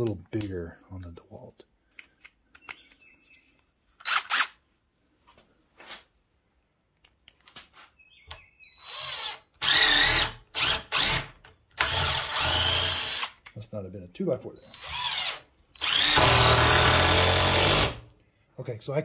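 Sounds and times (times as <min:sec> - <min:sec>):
impact driver whine and hammering: 0:08.8 - 0:13.3, 0:14.7 - 0:18.0.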